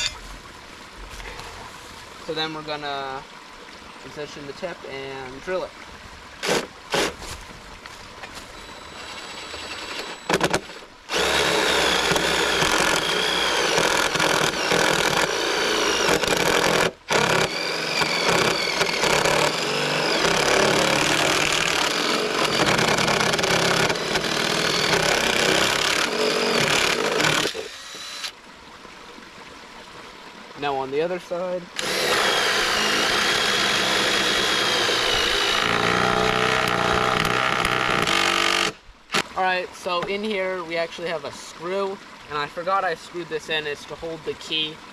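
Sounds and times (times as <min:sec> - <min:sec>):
cordless drill boring through wood: 0:06.4 - 0:07.1, 0:08.8 - 0:28.4, 0:31.8 - 0:39.3.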